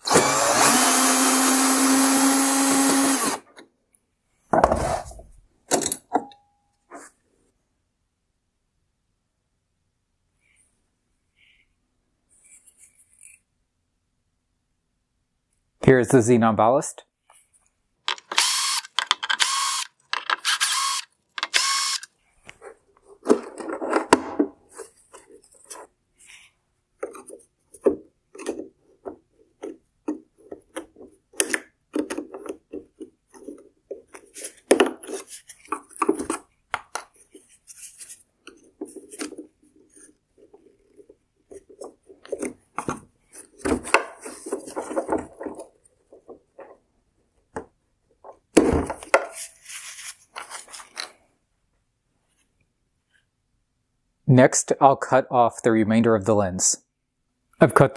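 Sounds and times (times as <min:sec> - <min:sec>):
cordless drill whirring: 0:00.0 - 0:03.5, 0:18.3 - 0:22.1.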